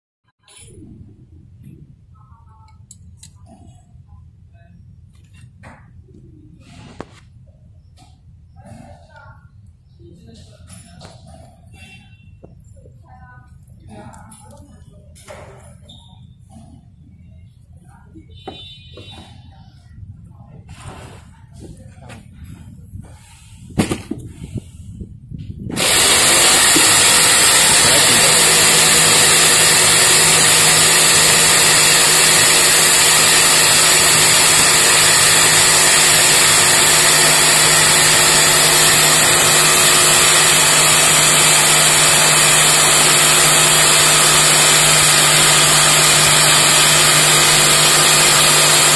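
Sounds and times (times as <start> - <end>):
electric jigsaw cutting a board: 25.7 - 48.9.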